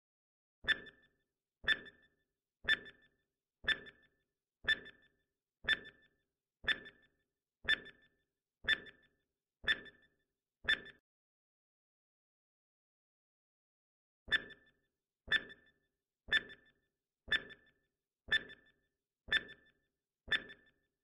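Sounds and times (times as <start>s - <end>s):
timer ticks with ringing tone: 0.6s - 11.0s, 14.3s - 21.0s.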